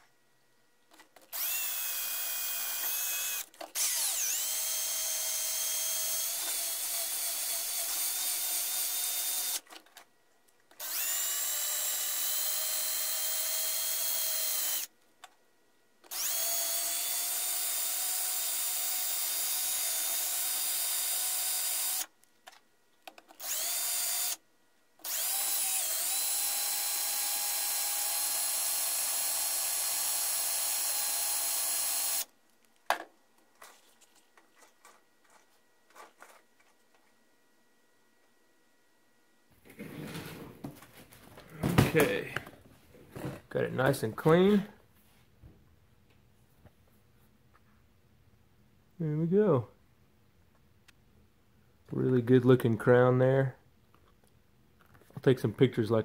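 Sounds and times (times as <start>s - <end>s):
cordless drill spinning: 0.9s - 10.1s, 10.7s - 14.9s, 16.0s - 22.2s, 23.4s - 24.4s, 25.0s - 32.3s.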